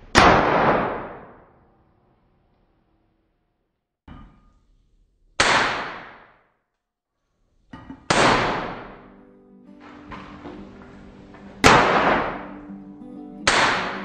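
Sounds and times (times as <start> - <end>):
hammer striking iron on anvil: 7.8 - 9.1, 9.8 - 12.6
music: 8.1 - 14.0.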